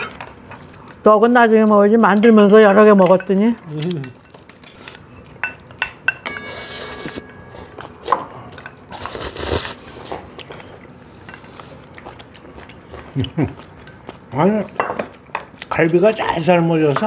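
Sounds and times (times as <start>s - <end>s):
cutlery clicking on ceramic dishes: 3.0s - 6.4s
cutlery scraping: 4.2s - 9.4s.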